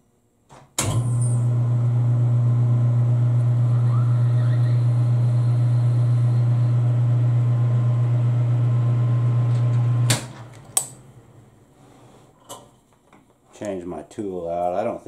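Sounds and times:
metal lathe motor humming: 1.6s - 9.9s.

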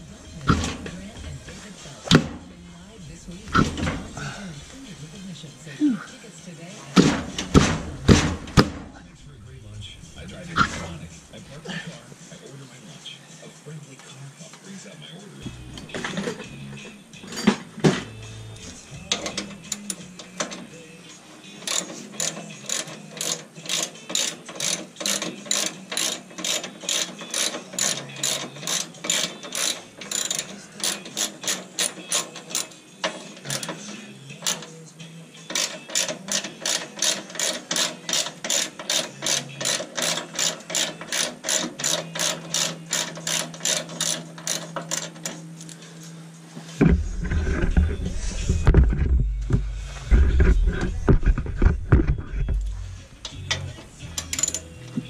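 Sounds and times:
ratchet wrench clicking: 18.6s - 20.9s, 21.6s - 34.8s, 35.5s - 45.8s, 52.6s - 54.7s.

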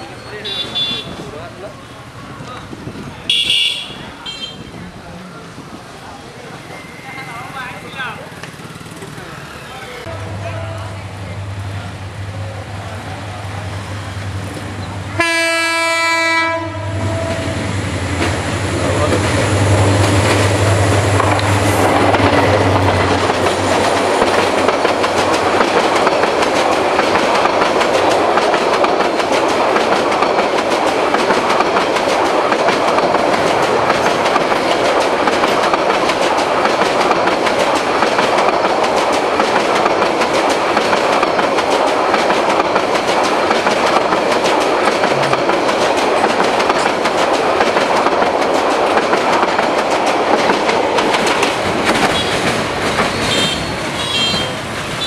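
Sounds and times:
train coaches rumbling past: 0.0s - 55.0s
diesel locomotive engine drone: 4.8s - 55.0s
wheel clatter over rail joints: 18.1s - 54.7s.

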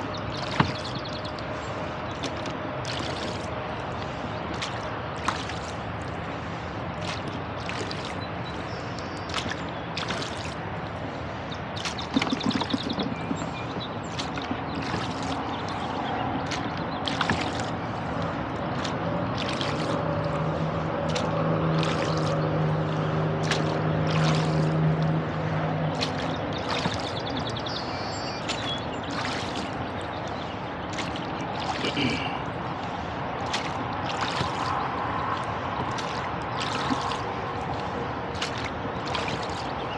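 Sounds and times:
low motor hum: 0.0s - 39.9s
oars splashing in water: 0.0s - 39.9s
water dripping from oars: 0.0s - 39.9s.

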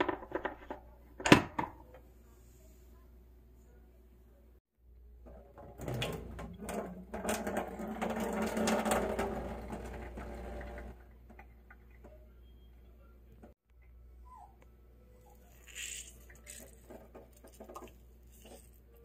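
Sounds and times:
water pouring into metal sink: 5.6s - 11.0s.

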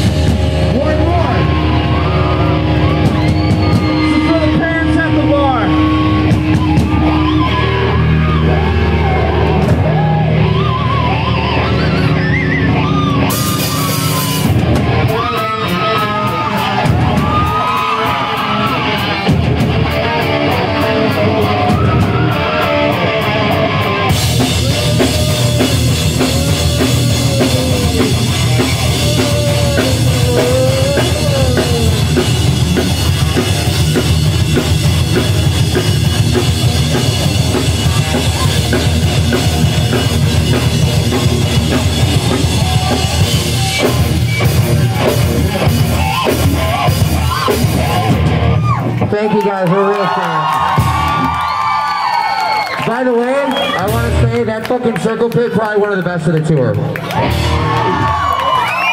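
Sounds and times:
drum kit: 0.0s - 49.0s, 50.4s - 54.5s, 57.0s - 58.9s
electric guitars: 0.0s - 55.6s, 56.3s - 58.9s
person singing: 24.5s - 32.6s.

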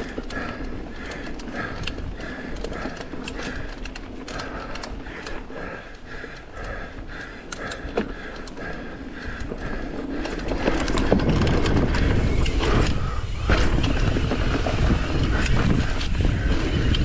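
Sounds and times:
bike chain and frame clattering: 0.0s - 17.0s
tyres rumbling over dirt: 7.8s - 17.0s
wind on microphone: 10.7s - 17.0s.

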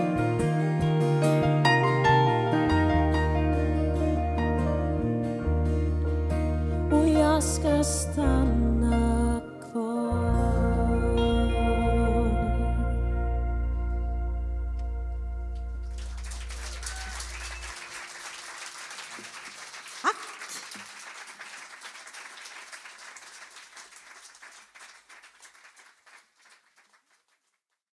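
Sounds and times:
held music chord: 8.2s - 16.4s
audience clapping: 15.6s - 27.8s.

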